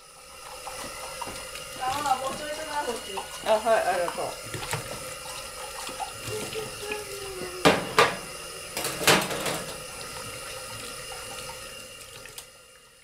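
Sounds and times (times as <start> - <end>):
tap water running into sink: 0.0 - 13.0
dish clattering against sink: 7.6 - 9.9.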